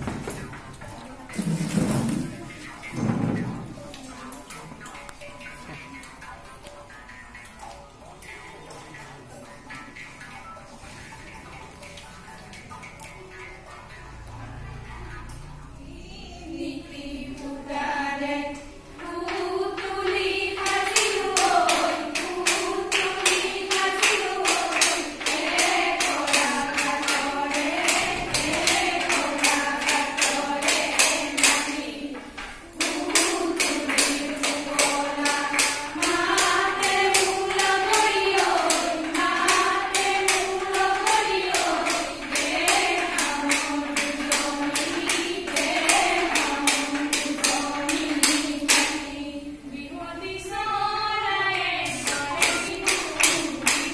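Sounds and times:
sharp clicking beat: 0.0s - 14.4s, 19.0s - 49.2s, 51.8s - 53.9s
women singing in unison: 15.8s - 53.9s.

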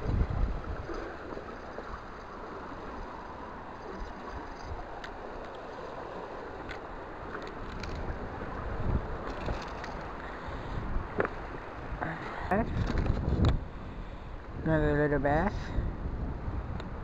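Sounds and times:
river water rushing: 0.0s - 12.5s.

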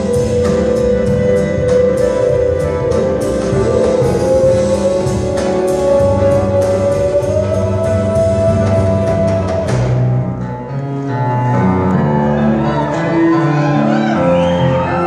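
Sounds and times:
drum and cymbal hits: 0.0s - 10.1s
big band jazz: 0.0s - 10.5s
upright bass notes: 0.0s - 10.7s.

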